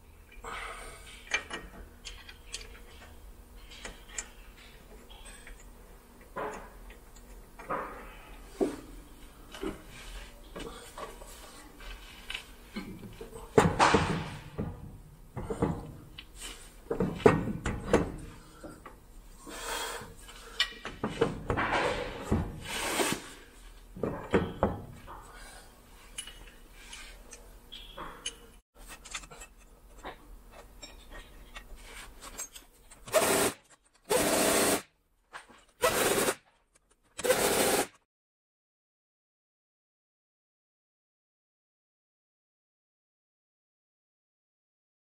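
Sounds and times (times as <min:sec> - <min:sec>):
metal clanking and scraping: 0:20.5 - 0:22.7
impact tool bursts: 0:33.1 - 0:34.9, 0:37.2 - 0:38.0.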